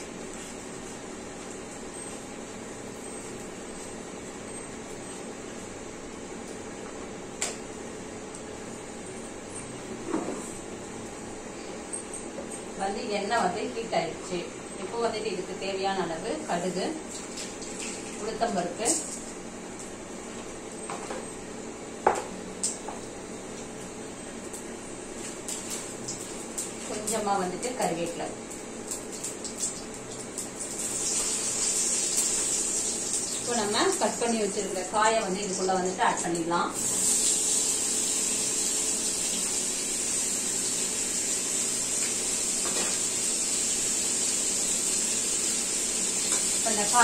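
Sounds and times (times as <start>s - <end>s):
seeds sizzling in hot oil: 29.0s - 36.0s, 36.8s - 47.0s.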